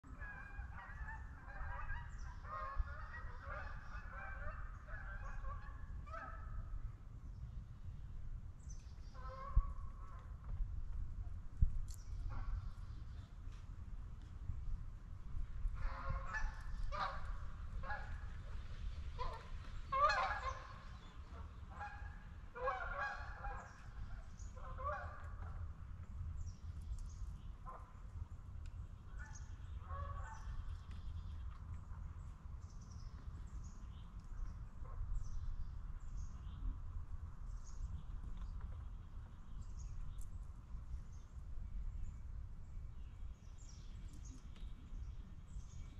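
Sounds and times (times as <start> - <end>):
geese honking: 0.1 - 6.5, 15.8 - 18.3, 19.2 - 23.8, 24.5 - 25.6, 29.2 - 30.5.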